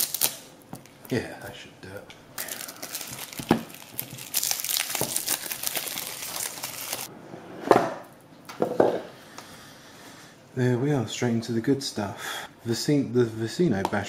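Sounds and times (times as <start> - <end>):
cellophane wrap crinkling: 0.0 - 1.2, 2.4 - 7.1.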